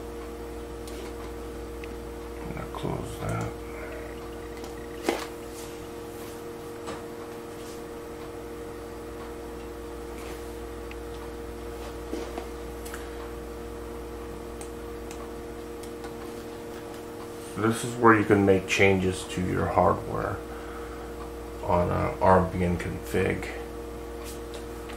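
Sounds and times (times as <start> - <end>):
electrical hum: 0.0 - 24.9
low drone: 2.4 - 5.9
light clicks and ticks: 3.2 - 3.6.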